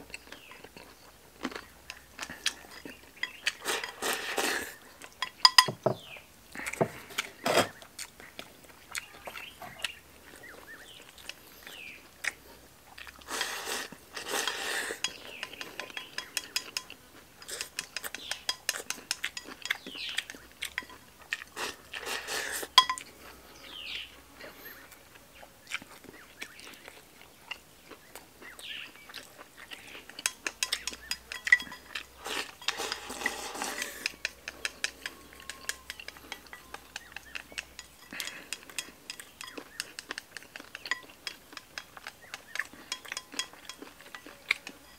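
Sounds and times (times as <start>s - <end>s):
man chewing: 0.0s - 44.9s
chopsticks tapping porcelain bowls: 1.5s - 6.1s, 13.3s - 22.1s, 22.7s - 23.1s, 30.0s - 44.9s
chopsticks scraping a bowl: 1.9s - 6.0s, 13.0s - 24.6s, 29.8s - 44.9s.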